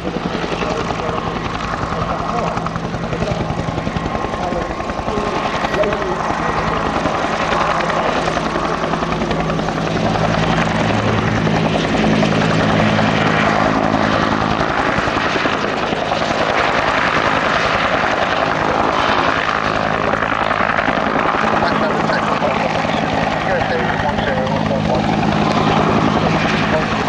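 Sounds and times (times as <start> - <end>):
helicopter rotor beat: 0.0 - 27.0
helicopter turbine: 0.0 - 27.0.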